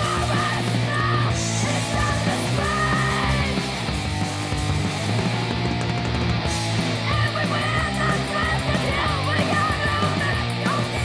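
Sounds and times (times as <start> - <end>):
distorted electric guitar: 0.0 - 11.0
person shouting vocals: 7.1 - 11.0.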